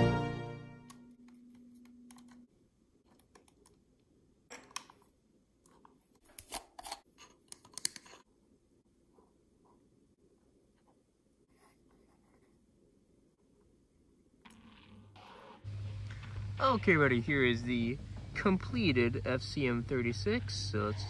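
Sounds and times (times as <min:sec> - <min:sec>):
background music: 0:00.0 - 0:01.2.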